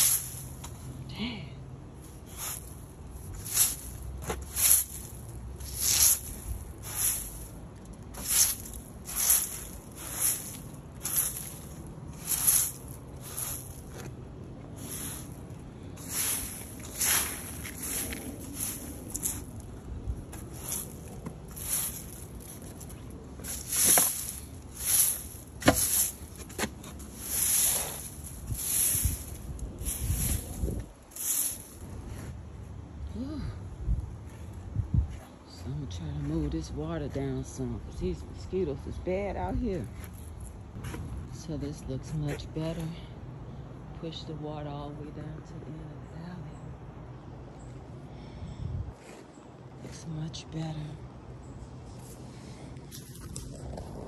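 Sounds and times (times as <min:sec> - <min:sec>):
broom sweeping water on pavement: 0:00.0 - 0:01.4, 0:02.0 - 0:32.4.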